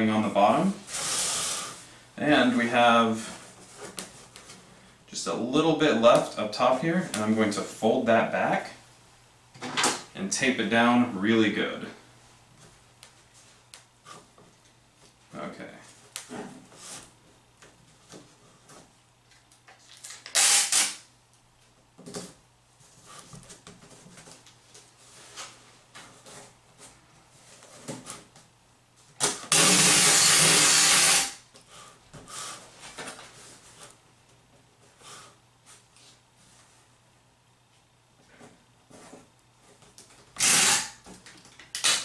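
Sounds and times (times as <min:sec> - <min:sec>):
packing tape unrolling: 0:19.3 - 0:21.1, 0:29.2 - 0:31.4, 0:39.9 - 0:42.0.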